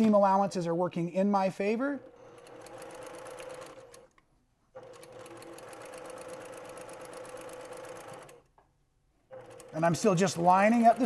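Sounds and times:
sewing machine stitching: 1.6 - 4.1, 4.7 - 8.5, 9.3 - 11.0.

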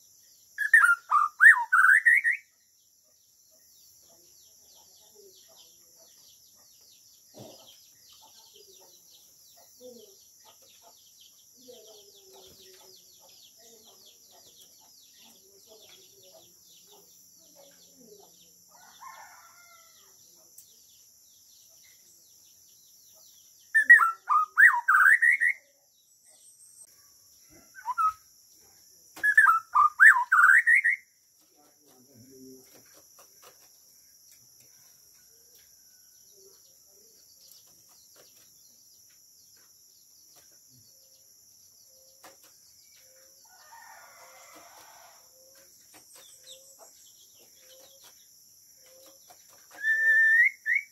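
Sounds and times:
bird whistling song: 0.6 - 2.5, 23.7 - 25.7, 27.8 - 28.3, 29.2 - 31.1, 48.8 - 50.9.

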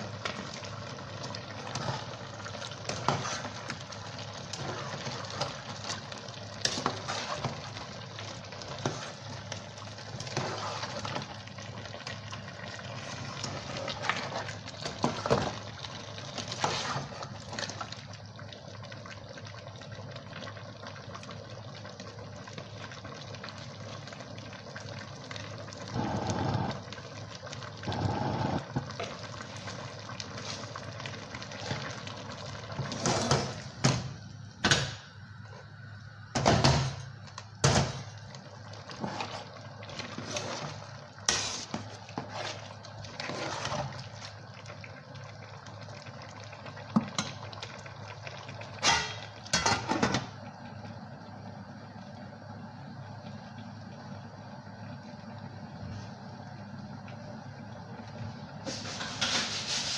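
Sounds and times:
gas stove hiss: 25.9 - 26.8, 27.9 - 29.5, 41.2 - 42.0, 54.2 - 59.9.

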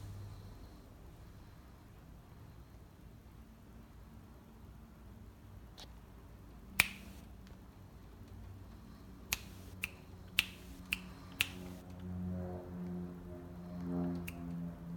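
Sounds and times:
finger snaps: 6.8 - 7.3, 9.3 - 11.8, 14.1 - 14.7.

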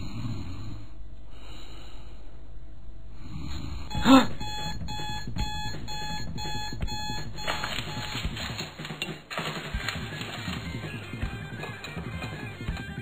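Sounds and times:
alarm clock beeping rapidly: 3.9 - 8.8.

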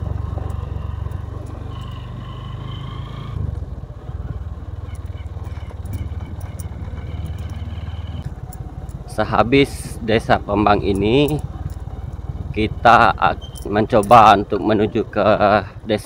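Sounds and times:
motorcycle engine running: 0.0 - 16.0
small clicks: 4.8 - 9.0.

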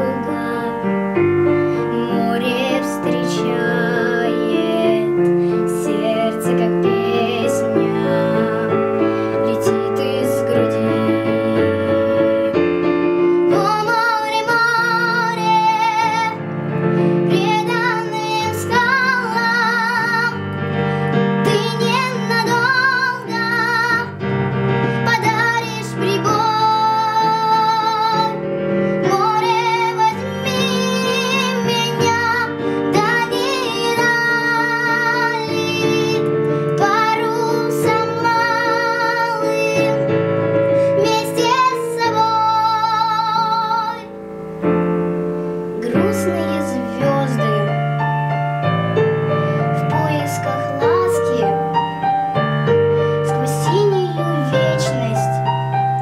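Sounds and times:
digital piano chords: 0.0 - 56.0
girl singing ballad: 0.0 - 56.0.

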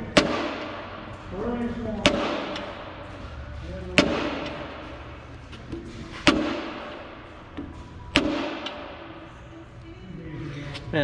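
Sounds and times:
hammer striking cast iron: 0.0 - 1.2, 2.0 - 3.0, 3.9 - 5.0, 6.2 - 7.1, 8.1 - 9.0.

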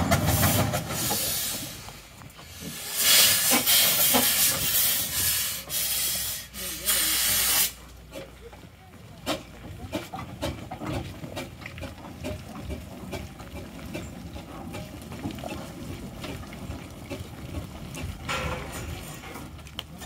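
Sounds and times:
steam engine chuffing: 0.0 - 20.0
steam hiss: 0.1 - 8.3.

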